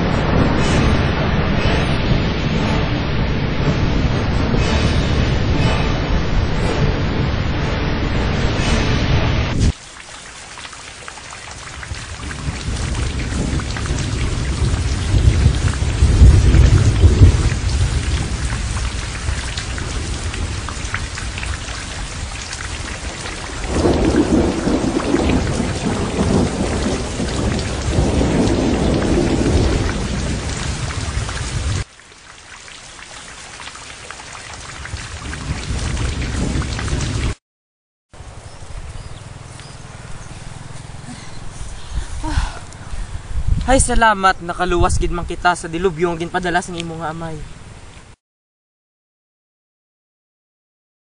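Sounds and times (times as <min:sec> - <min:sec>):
heavy rain: 0:00.0 - 0:37.4, 0:38.2 - 0:44.1
rolling thunder: 0:11.8 - 0:31.9, 0:34.8 - 0:37.4.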